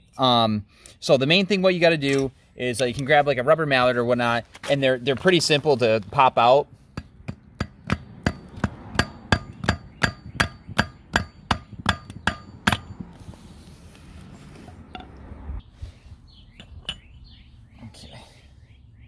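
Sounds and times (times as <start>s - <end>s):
rubber mallet striking metal: 6.9s - 13.1s.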